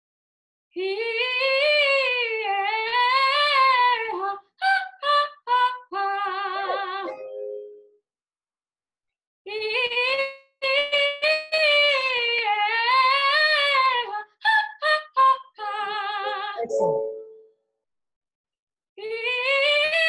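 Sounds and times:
soprano singing vocal exercise: 0.8 - 7.7, 9.5 - 17.4.

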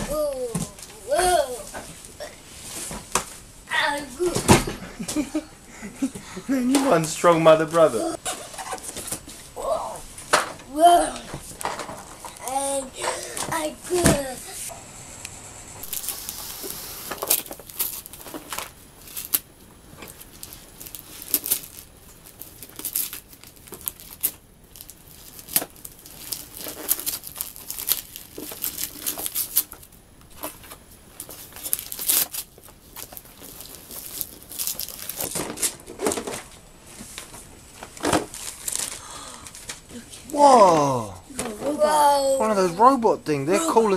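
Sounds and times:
wrapping paper tearing: 15.8 - 36.2, 38.1 - 39.0.

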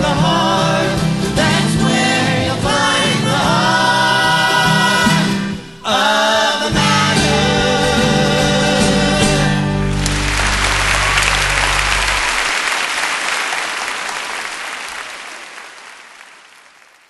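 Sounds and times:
voices singing with acoustic guitars: 0.0 - 10.3
audience applause: 9.8 - 17.0.

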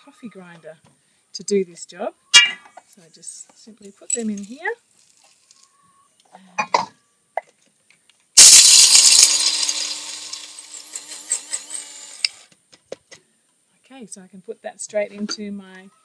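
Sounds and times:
coffee grinder motor whirring: 8.4 - 12.4.

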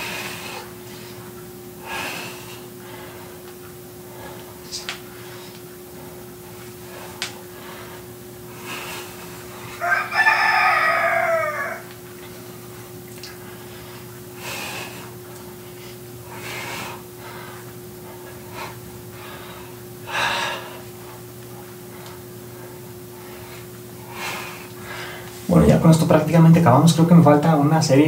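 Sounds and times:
rooster crowing: 9.8 - 11.9.

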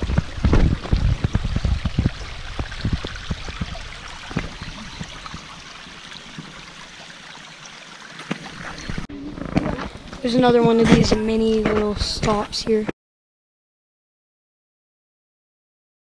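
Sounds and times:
dull low thumps: 0.0 - 5.5
stream flowing over stones: 0.0 - 12.8.

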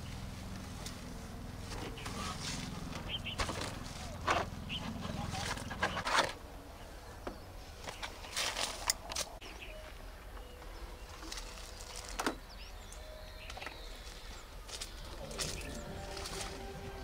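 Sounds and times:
faint outdoor background: 0.0 - 17.0
rustles and knocks: 1.7 - 6.4.

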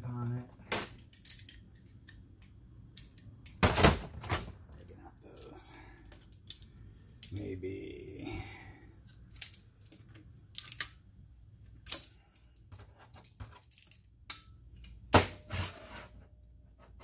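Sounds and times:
metallic clicks and clinks: 1.0 - 1.9, 4.7 - 7.6, 9.2 - 11.0, 11.6 - 15.0.

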